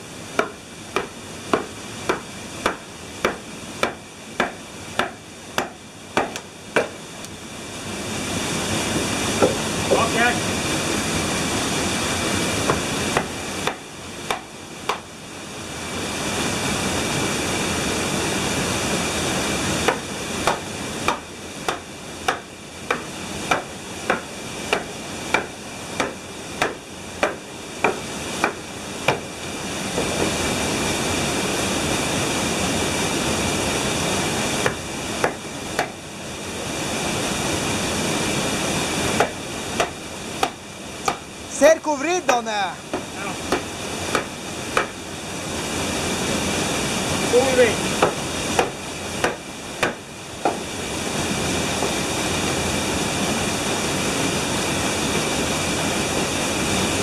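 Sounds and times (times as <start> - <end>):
steady rushing noise: 0.0 - 57.0
hammer striking wedges: 0.4 - 7.0, 12.7 - 15.1, 19.9 - 29.3, 34.6 - 36.0, 39.2 - 41.3, 42.3 - 45.0, 48.0 - 50.6.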